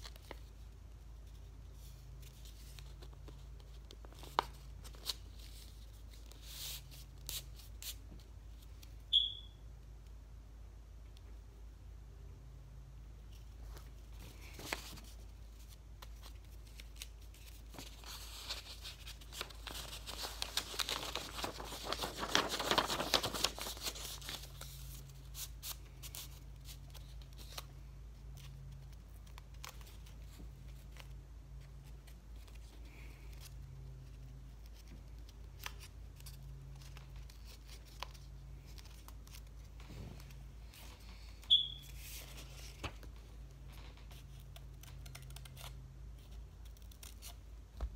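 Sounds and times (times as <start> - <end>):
paper rustling and crinkling: 1.3 - 8.0, 13.4 - 27.7, 31.8 - 47.4.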